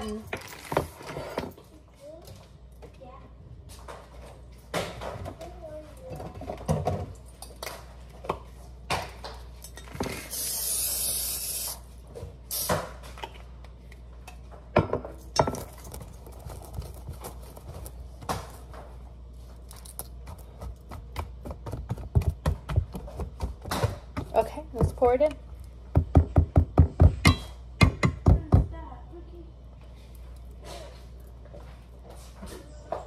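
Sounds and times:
hiss: 10.2s - 11.8s, 12.5s - 12.8s
utensils and dishes clinking: 14.3s - 16.7s.

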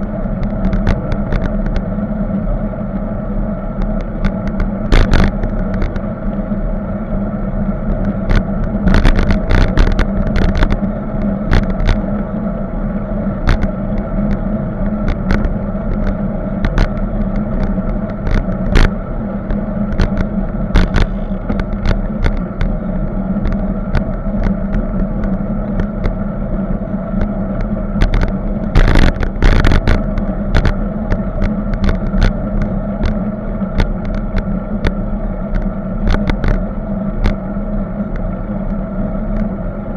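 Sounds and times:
bicycle rattling over bumps: 0.0s - 2.0s, 7.8s - 12.4s, 13.4s - 38.2s.

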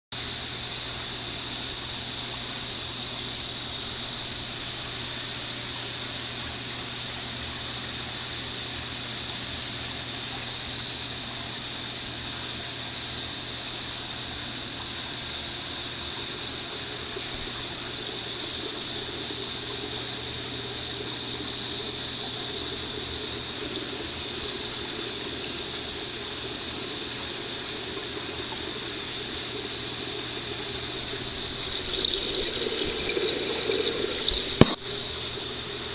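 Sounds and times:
aquarium pump hum and whine: 0.2s - 35.9s
moving water: 13.6s - 35.9s.

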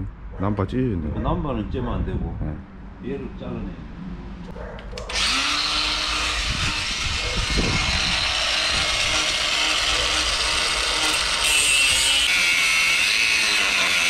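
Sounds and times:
angle grinder cutting steel: 5.0s - 14.0s.

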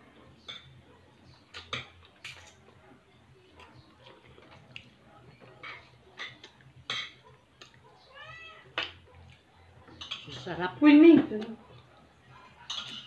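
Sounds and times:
chewing smacks and clicks: 1.4s - 2.8s, 3.5s - 7.8s.

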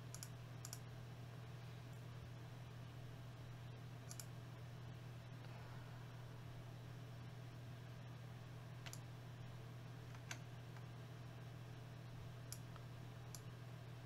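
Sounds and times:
steady low hum: 0.0s - 14.0s
computer mouse clicks: 0.1s - 0.8s, 4.1s - 4.3s, 8.8s - 9.0s, 12.5s - 13.5s.

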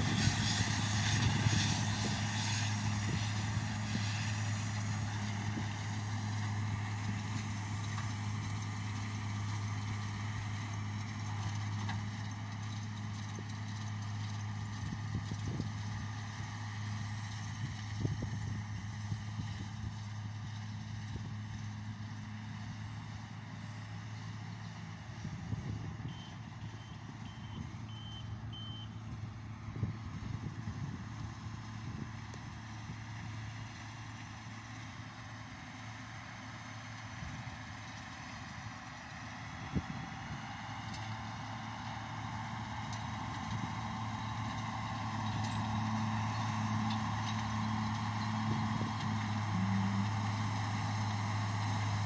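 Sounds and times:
tractor engine running: 0.0s - 52.0s
short high beeps: 26.1s - 29.0s.

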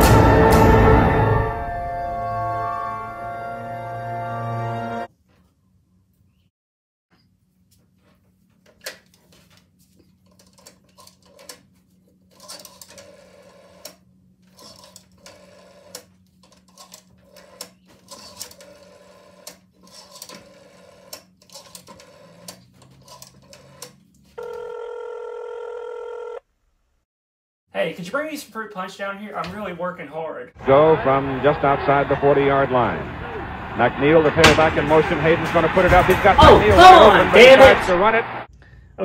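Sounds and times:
rotary phone dial clicking: 10.3s - 11.6s, 12.3s - 24.6s
loud steady telephone tone: 24.4s - 26.5s.

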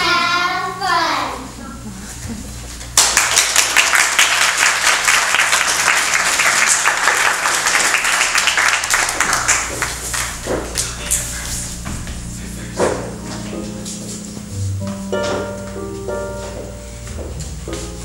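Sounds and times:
audience applauding: 2.9s - 11.4s.

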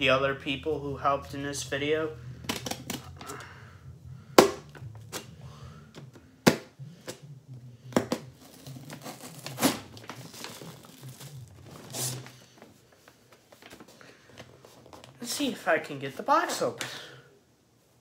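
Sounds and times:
cardboard and tape crinkling: 8.0s - 15.3s.

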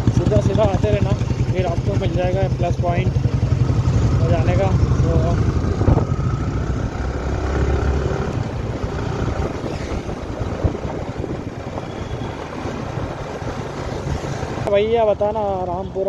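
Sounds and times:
motorcycle engine running: 0.0s - 15.6s
wind noise on microphone: 5.5s - 14.7s.

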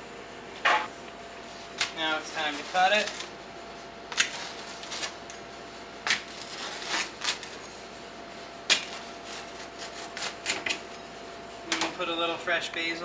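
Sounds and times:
pizza cutter slicing crust: 1.6s - 3.4s, 4.0s - 5.3s, 6.0s - 7.8s, 8.6s - 11.0s.

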